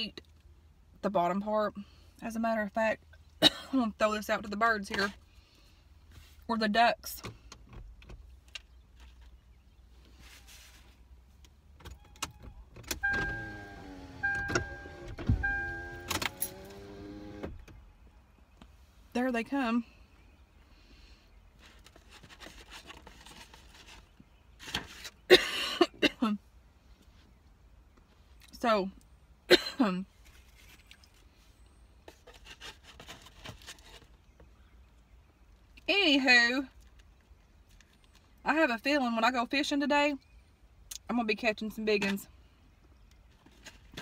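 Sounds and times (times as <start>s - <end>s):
car warning chime dinging: 13.0s - 16.7s
electric window motor whine: 13.0s - 17.5s.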